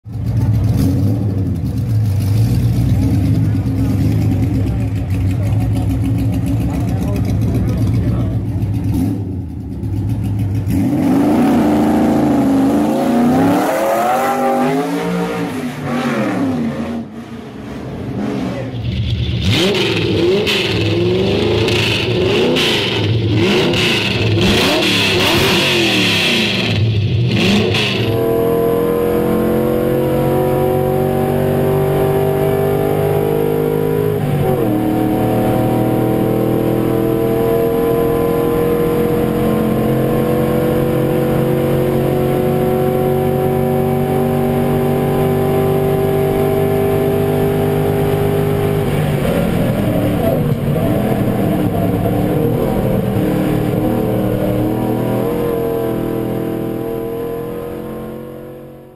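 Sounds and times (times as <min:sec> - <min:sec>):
engine revving in blips: 0:18.2 - 0:58.9.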